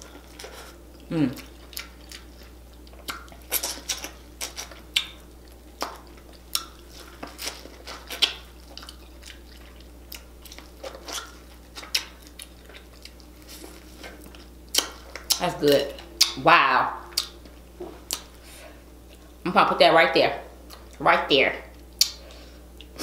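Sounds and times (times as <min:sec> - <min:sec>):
person chewing corn on the cob: 0:00.0 - 0:16.4.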